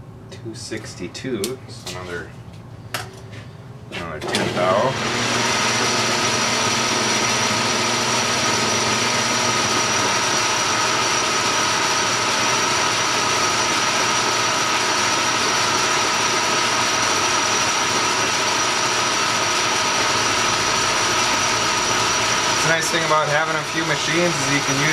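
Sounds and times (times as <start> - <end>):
metal lathe running: 4.3 - 24.9.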